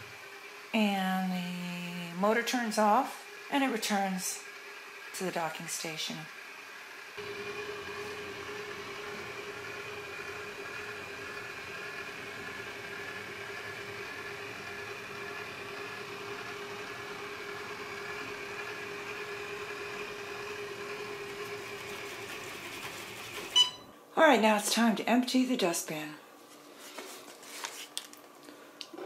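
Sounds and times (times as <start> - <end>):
robot vacuum drive whine: 1.5 - 21.3.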